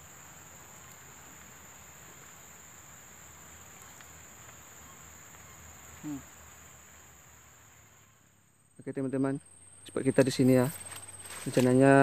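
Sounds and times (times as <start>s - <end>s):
insects chirring: 0.0s - 12.0s
man's short vocal sound: 6.0s - 6.3s.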